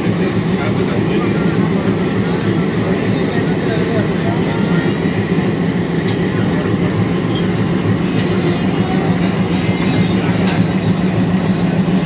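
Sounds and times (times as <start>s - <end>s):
diesel locomotive engine idling: 0.0s - 12.0s
faint metallic clinks: 7.2s - 10.8s.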